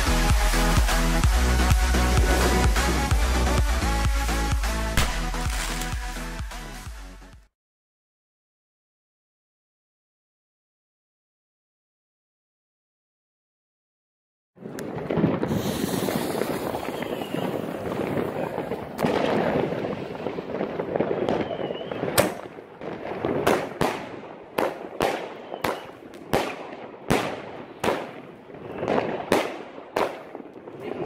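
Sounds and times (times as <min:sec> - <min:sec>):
firework cake firing: 0:05.0 - 0:06.0, 0:14.6 - 0:31.0.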